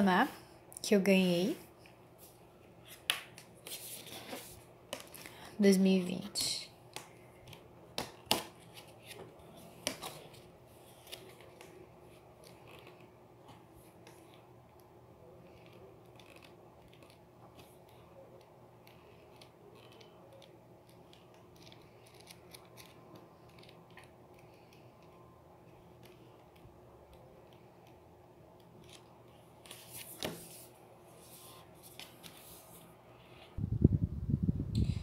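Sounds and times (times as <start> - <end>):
book pages rustling: 2.2 - 5.4, 7.0 - 14.5, 28.8 - 33.6.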